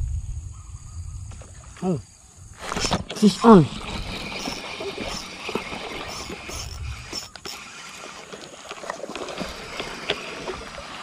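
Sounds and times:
spinning reel cranking: 0:02.7 - 0:11.0
fishing rod handling noise: 0:03.8 - 0:11.0.

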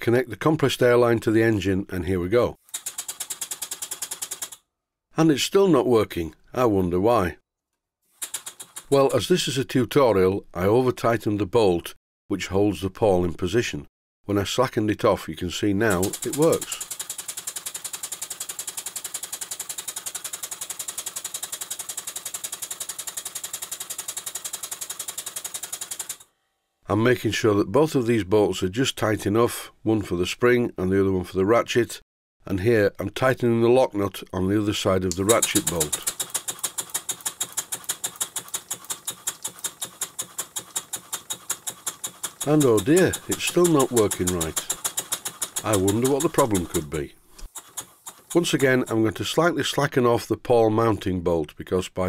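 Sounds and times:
lubricator ratchet clicking: 0:02.6 - 0:04.6, 0:08.2 - 0:09.0, 0:15.9 - 0:26.3, 0:35.1 - 0:46.8, 0:47.4 - 0:49.0
steam engine beating rapidly: 0:15.9 - 0:24.7, 0:35.3 - 0:46.8.

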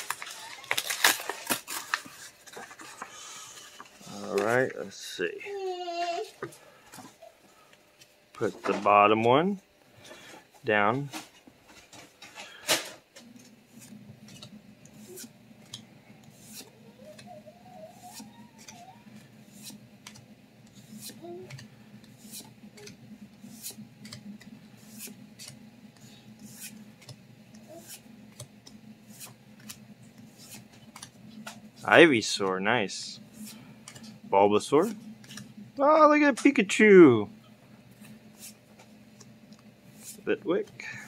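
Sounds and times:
cards snapping and rubbing: 0:13.4 - 0:17.3, 0:19.4 - 0:31.9, 0:34.8 - 0:35.6.

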